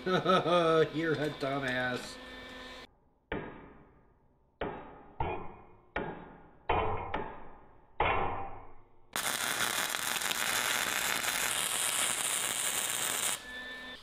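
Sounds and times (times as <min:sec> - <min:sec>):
hammer striking steel: 0:03.3 - 0:08.8.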